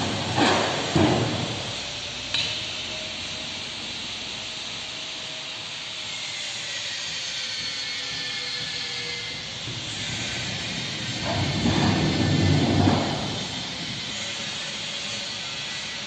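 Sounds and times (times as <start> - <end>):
pallet jack clanking and rumbling: 0.0 - 2.4, 9.6 - 14.5.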